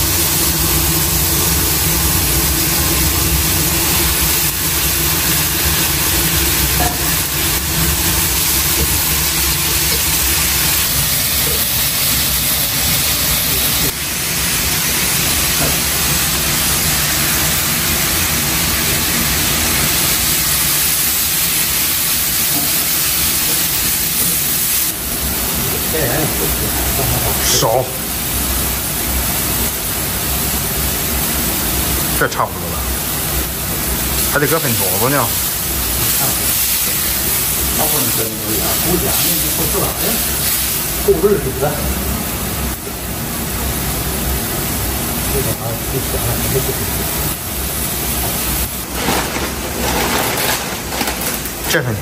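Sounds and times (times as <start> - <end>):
gas burner rumble: 0.0 - 52.0
wok stir-frying hiss: 0.0 - 52.0.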